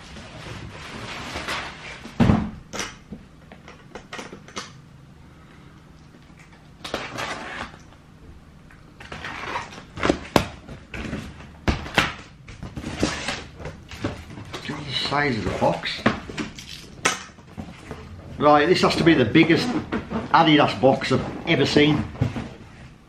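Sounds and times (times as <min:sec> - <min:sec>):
cardboard boxes thumping and knocking: 0:02.0 - 0:02.7, 0:21.8 - 0:22.8.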